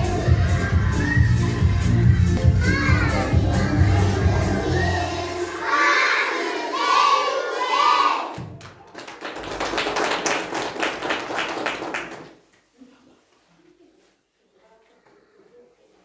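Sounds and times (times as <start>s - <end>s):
audience clapping: 8.3s - 12.5s.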